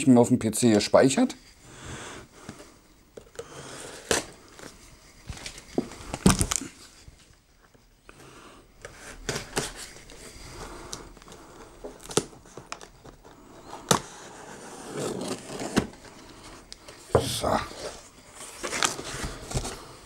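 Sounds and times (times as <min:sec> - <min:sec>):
cardboard scraping and rustling: 0:11.8 - 0:20.0.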